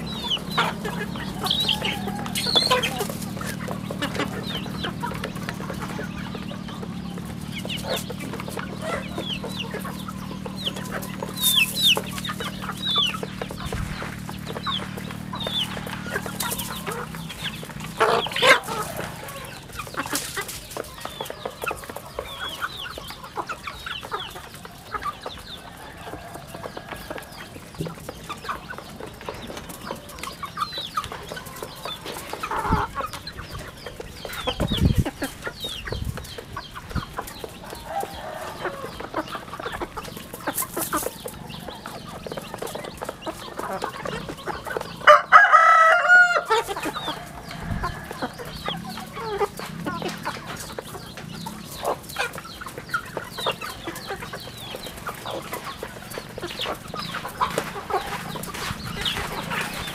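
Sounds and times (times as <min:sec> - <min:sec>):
chickens clucking: 0:00.0 - 0:59.9
young cockerel crowing: 0:01.4 - 0:03.1, 0:45.0 - 0:48.3.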